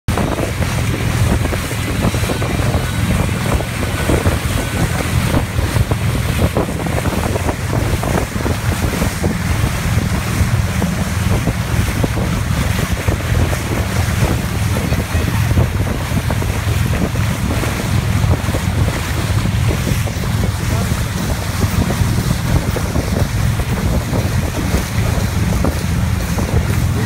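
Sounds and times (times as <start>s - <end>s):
water rushing along boat hull: 0.0s - 27.0s
wind buffeting microphone: 0.1s - 27.0s.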